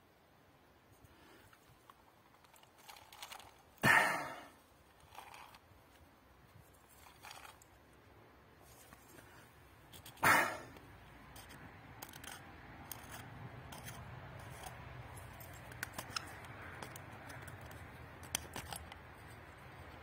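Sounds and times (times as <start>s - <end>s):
canteen handling noise: 1.0s - 7.8s, 8.6s - 20.0s
faint rustles and knocks: 8.6s - 10.2s
scrape or rattle: 9.9s - 17.0s.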